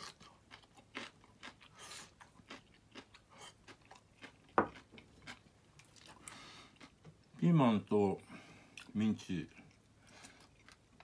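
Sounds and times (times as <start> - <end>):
man chewing food: 0.0 - 7.4, 8.4 - 11.0.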